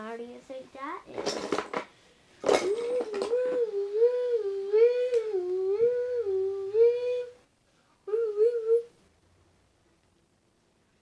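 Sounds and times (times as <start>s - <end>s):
person imitating police siren: 2.6s - 7.4s, 8.1s - 8.9s.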